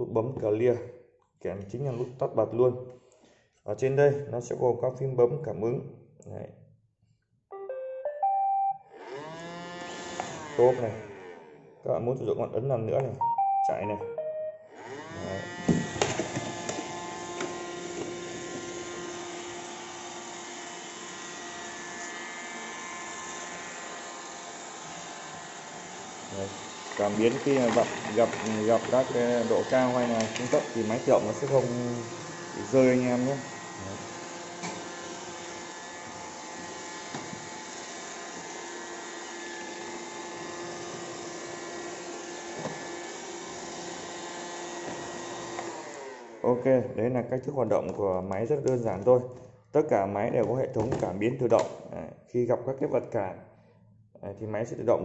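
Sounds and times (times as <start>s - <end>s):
robot vacuum whirring hum: 8.9s - 11.7s, 14.7s - 46.4s.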